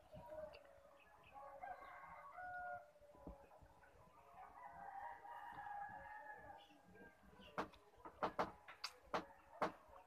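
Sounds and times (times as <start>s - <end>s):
faint rooster crowing: 0.2s - 3.4s, 4.3s - 6.8s
soft knocks: 7.6s - 9.8s.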